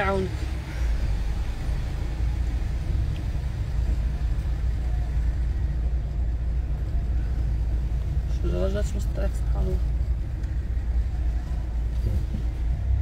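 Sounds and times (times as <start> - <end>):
car engine and tyre rumble: 0.0 - 13.0.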